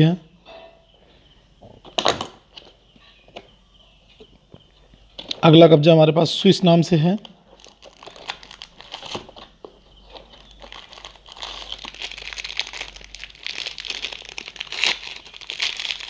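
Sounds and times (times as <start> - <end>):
plastic packaging crinkling: 7.2 - 16.0.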